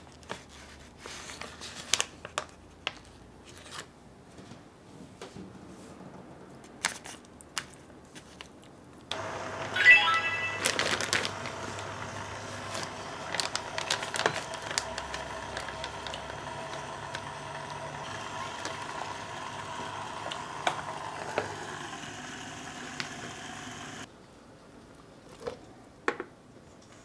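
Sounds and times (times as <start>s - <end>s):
circulator humming: 9.1s - 24.1s
plastic bag crinkling: 10.3s - 11.9s, 12.5s - 17.2s.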